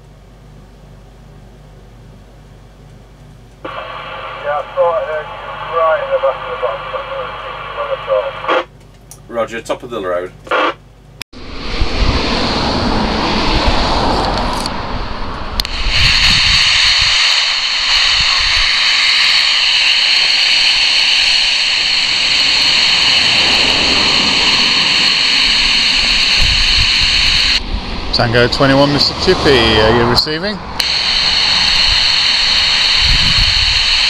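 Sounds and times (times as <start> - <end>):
walkie-talkie static hiss: 3.6 - 8.8, 10.4 - 10.8, 15.6 - 27.6, 30.8 - 34.0
walkie-talkie click: 10.4 - 10.8
low rumble: 11.4 - 34.0.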